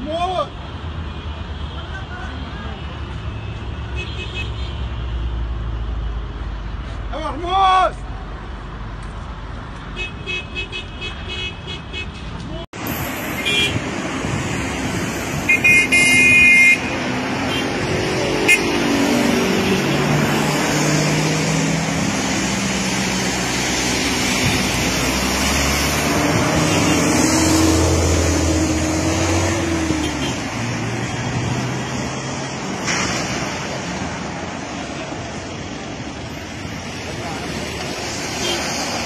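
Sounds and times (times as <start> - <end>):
steady rushing traffic noise: 0.0 - 39.0
vehicle engines passing: 0.0 - 39.0.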